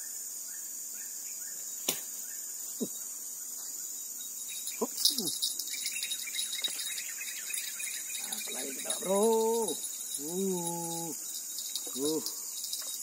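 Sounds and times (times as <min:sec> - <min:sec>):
crickets chirping: 0:00.0 - 0:13.0
fishing reel clicking and rustling: 0:07.6 - 0:13.0.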